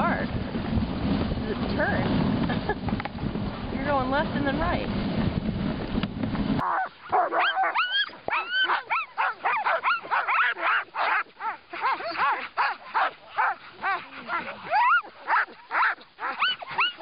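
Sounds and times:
wind on microphone: 0:00.0 - 0:17.0
sled dogs yelping and barking: 0:06.6 - 0:17.0.

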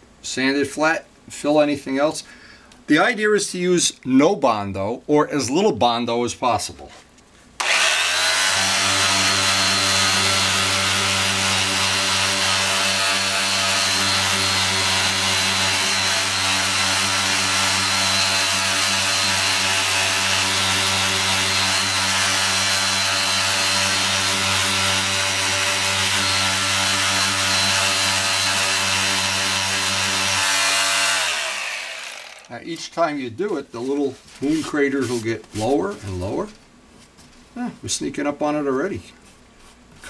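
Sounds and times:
electric sander humming: 0:07.6 - 0:32.5.

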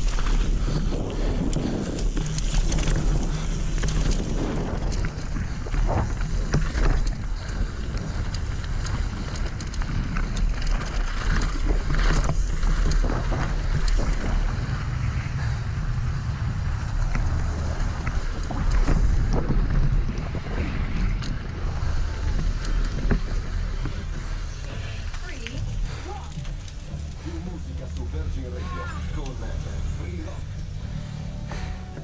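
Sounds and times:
wind on microphone: 0:00.0 - 0:24.8
bike knocking and rattling: 0:00.0 - 0:32.0
tyres rolling over gravel: 0:00.0 - 0:32.0.

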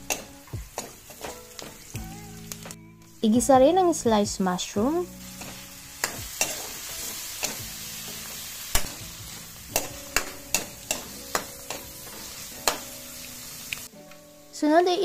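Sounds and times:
mushrooms sizzling in a wok: 0:00.0 - 0:15.0.

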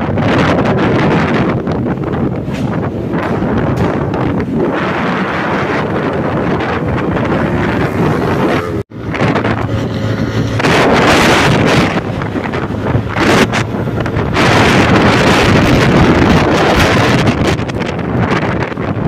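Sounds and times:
wind buffeting microphone: 0:00.0 - 0:19.0
motorcycle engine running: 0:03.2 - 0:18.1.

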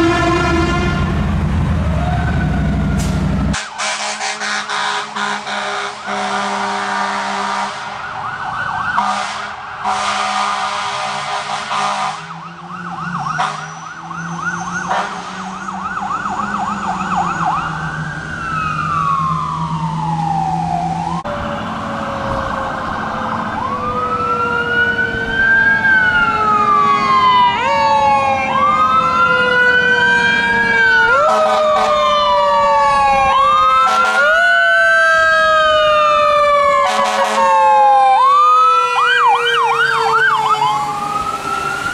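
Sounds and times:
horn blasts: 0:00.0 - 0:01.3, 0:03.5 - 0:07.9, 0:09.0 - 0:12.4, 0:14.9 - 0:15.6, 0:33.8 - 0:34.4, 0:36.9 - 0:37.6
diesel truck engine: 0:00.0 - 0:08.8
fire engine siren: 0:00.0 - 0:41.9.

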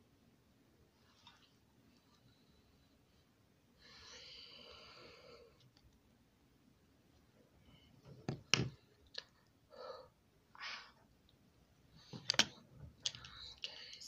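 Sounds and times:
makeup items clicking and knocking: 0:08.2 - 0:08.8, 0:12.2 - 0:13.4.

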